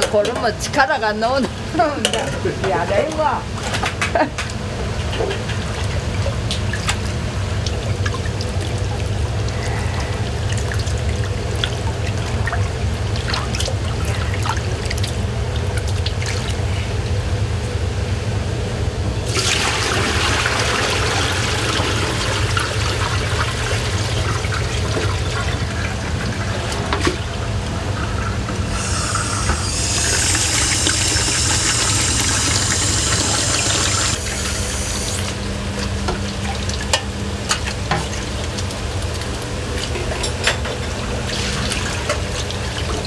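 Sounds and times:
tap water running into basin: 0.0s - 17.2s, 19.3s - 43.0s
steady low hum: 0.0s - 19.4s
splashing of noodles rinsed by hand: 4.8s - 17.3s, 29.8s - 43.0s.

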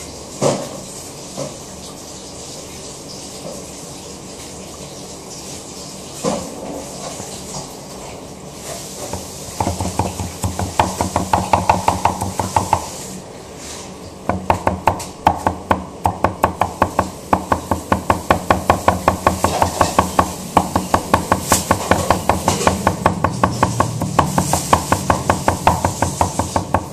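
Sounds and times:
cleaver chopping on cutting board: 9.1s - 13.0s, 14.3s - 26.9s.

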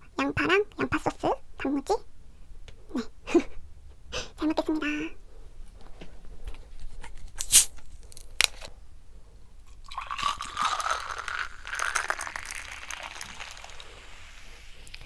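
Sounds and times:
bottle opening hiss: 7.4s - 7.8s, 10.4s - 15.0s
soda pouring fizzing into glass: 9.7s - 15.0s.

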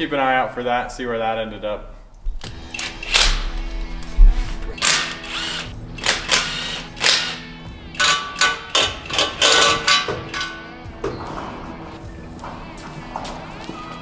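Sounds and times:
background music: 0.0s - 14.0s
cordless power tool bursts: 4.8s - 9.7s.

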